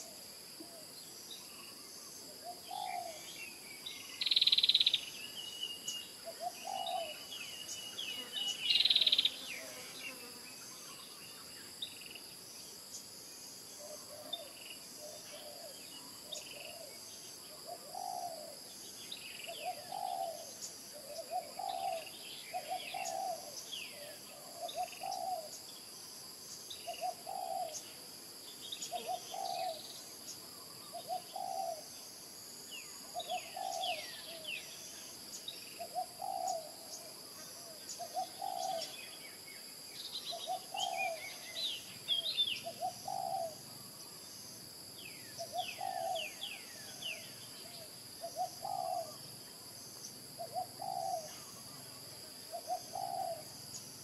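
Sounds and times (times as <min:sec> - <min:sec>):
small birds chirping: 0:01.3 - 0:12.2, 0:13.8 - 0:31.9, 0:32.8 - 0:39.4, 0:40.0 - 0:51.6, 0:52.5 - 0:54.0
dove cooing: 0:02.4 - 0:03.2, 0:06.3 - 0:07.2, 0:17.6 - 0:18.6, 0:19.5 - 0:25.5, 0:26.9 - 0:27.8, 0:28.9 - 0:29.8, 0:30.9 - 0:31.8, 0:33.1 - 0:34.5, 0:35.8 - 0:37.0, 0:37.6 - 0:39.0, 0:40.3 - 0:41.4, 0:42.6 - 0:43.6, 0:45.4 - 0:46.4, 0:48.2 - 0:49.2, 0:50.4 - 0:51.7, 0:52.5 - 0:53.5.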